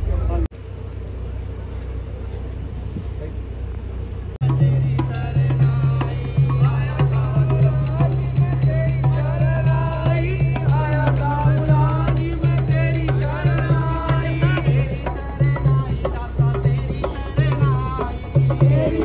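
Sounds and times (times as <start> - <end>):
person singing: 4.4 - 19.0
pulsing low drum beat: 4.4 - 19.0.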